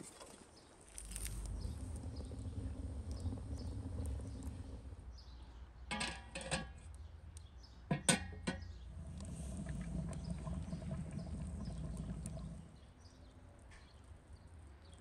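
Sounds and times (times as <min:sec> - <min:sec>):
low steady rumble: 0:00.9 - 0:05.5, 0:08.4 - 0:12.9.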